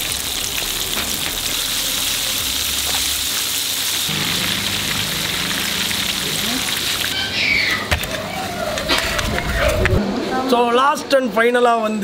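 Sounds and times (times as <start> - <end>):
oil sizzling deep-frying: 0.0 - 8.5.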